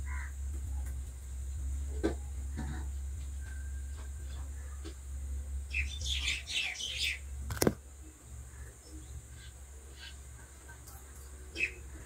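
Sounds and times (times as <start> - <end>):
steady low hum: 0.0 - 12.0
birds chirping: 5.6 - 7.7, 8.3 - 12.0.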